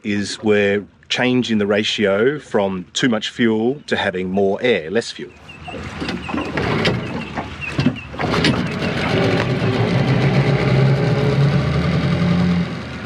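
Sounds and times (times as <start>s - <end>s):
outboard engine starting and running: 5.3s - 13.0s.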